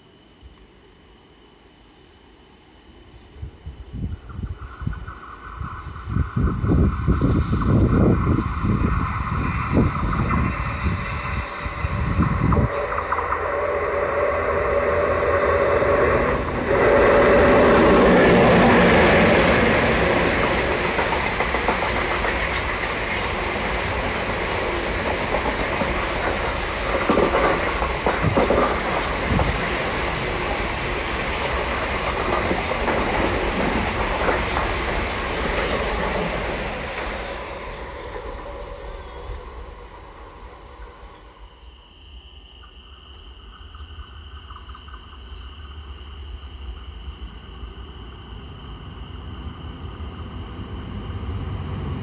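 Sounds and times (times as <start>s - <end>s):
passenger train passing: 0.0s - 52.0s
wheels clicking over rail joints: 19.8s - 39.0s.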